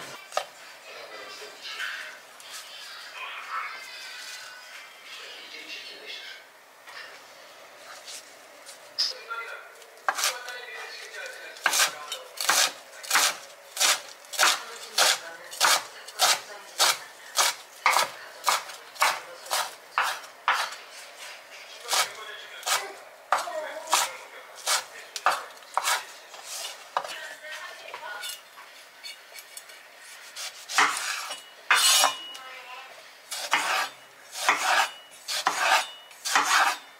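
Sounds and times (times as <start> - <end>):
knife chopping herbs on board: 10.1 - 10.6, 11.6 - 20.8, 21.9 - 27.2, 30.4 - 32.2, 33.3 - 36.8.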